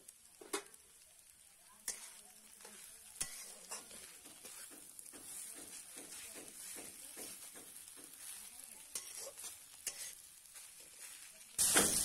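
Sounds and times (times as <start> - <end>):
faint sizzle: 0.0 - 12.0
metal spatula scraping a wok: 1.8 - 12.0
spatula knocking against pan: 4.2 - 8.2.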